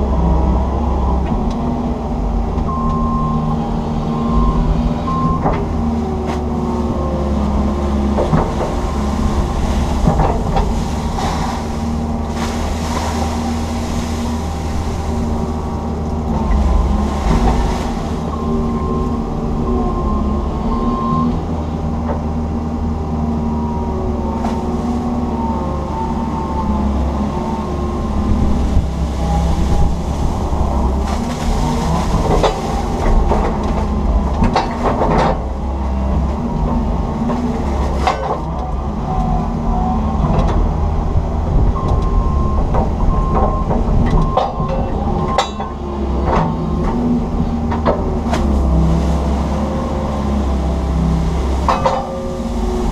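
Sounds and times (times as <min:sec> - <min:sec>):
diesel engine running under load: 0:00.0 - 0:52.9
excavator bucket knocks and clanks: 0:08.0 - 0:13.4, 0:30.9 - 0:35.6, 0:42.6 - 0:48.8, 0:51.5 - 0:52.9.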